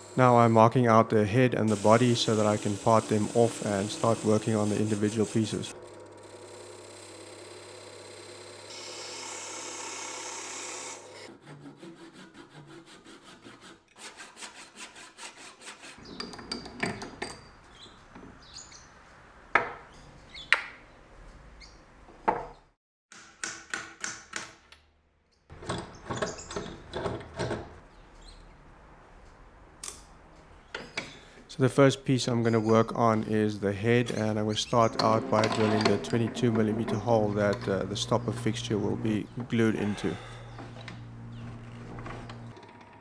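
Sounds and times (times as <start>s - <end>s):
lathe cutting wood: 1.7s - 11.3s, 34.1s - 42.5s
lathe hum: 1.7s - 11.3s, 34.2s - 42.8s
wood and tools knocking: 25.5s - 27.8s, 34.9s - 38.6s.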